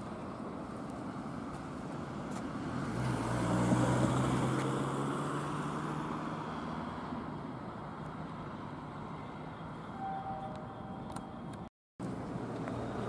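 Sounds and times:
vehicle passing: 1.8 - 7.4.

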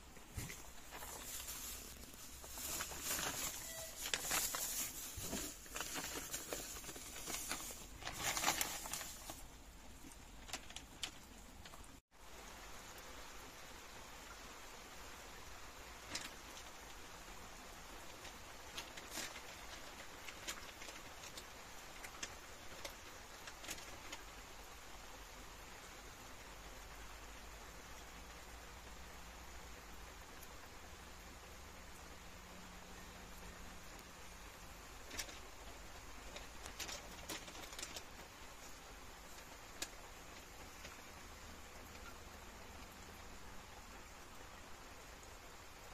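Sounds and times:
raindrops ticking: 0.0 - 12.0
light rain hiss: 0.0 - 45.9.

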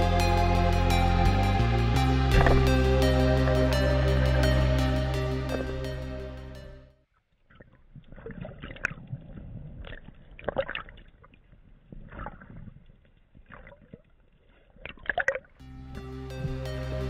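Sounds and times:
background music: 0.0 - 6.9, 15.6 - 17.0
underwater gurgling and bubbling: 2.3 - 2.7.

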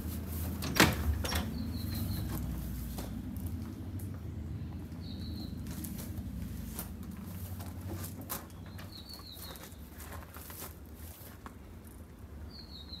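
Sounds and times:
bird chirp: 1.2 - 2.6, 4.4 - 5.9, 8.5 - 10.1, 12.4 - 13.0.

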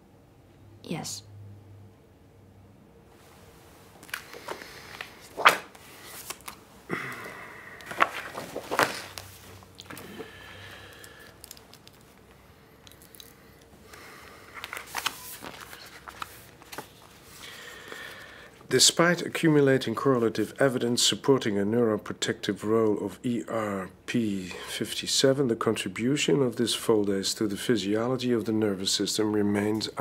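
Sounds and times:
paper rustling: 4.0 - 6.6, 7.8 - 12.3, 14.6 - 18.2.

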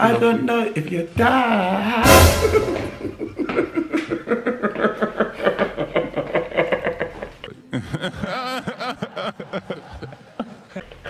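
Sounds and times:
men laughing: 2.3 - 11.0.

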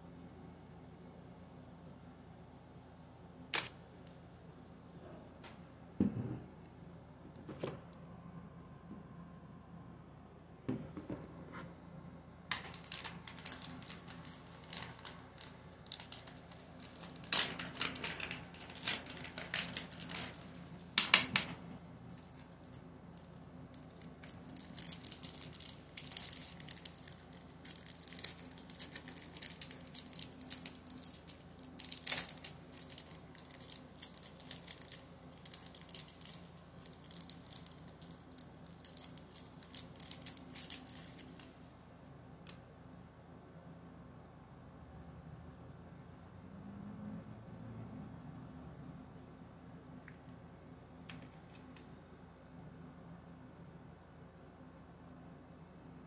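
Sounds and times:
faint low hum: 0.0 - 56.0
packaging crinkling and tearing: 12.5 - 41.5.

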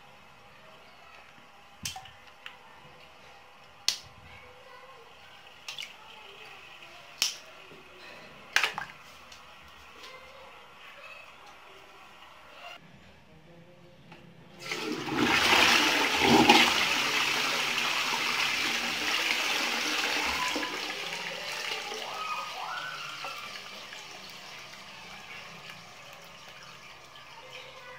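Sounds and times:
toilet flushing: 14.6 - 27.9.

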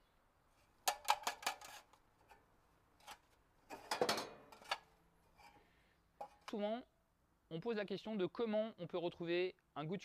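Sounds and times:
metal bars knocking and clinking: 3.7 - 4.8.

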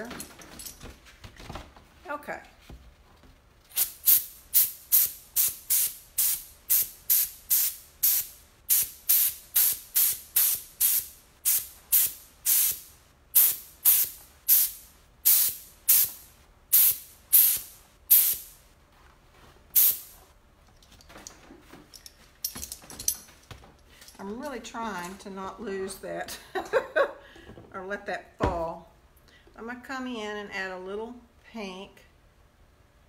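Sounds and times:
hand sprayer spritzing: 3.7 - 18.5, 19.8 - 20.2.

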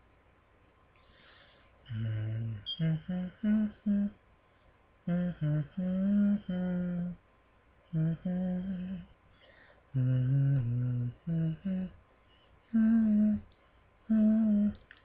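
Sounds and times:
man humming a slow melody: 1.9 - 4.2, 5.1 - 7.2, 7.9 - 9.1, 9.9 - 12.0, 12.7 - 13.5, 14.1 - 14.9.

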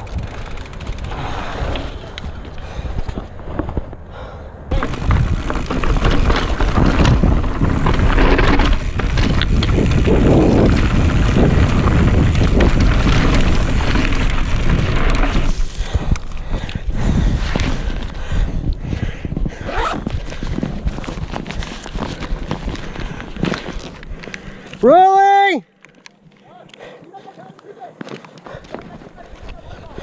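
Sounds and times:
wind buffeting microphone: 0.0 - 24.2
bike rattling: 0.0 - 26.6
tyres crunching over rock: 4.7 - 16.4, 19.7 - 24.9.

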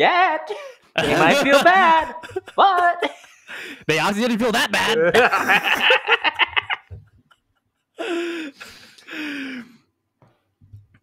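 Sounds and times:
men laughing: 0.5 - 9.5.

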